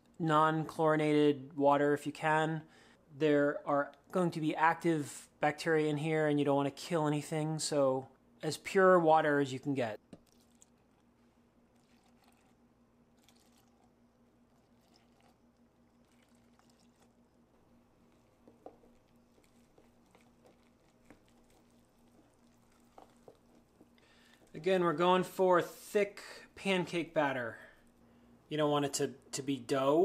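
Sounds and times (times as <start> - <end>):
faint steady hum: 0.0 - 30.0
spoon stirring thick batter: 10.0 - 25.0
water pouring into flour: 11.7 - 17.2, 18.1 - 24.6.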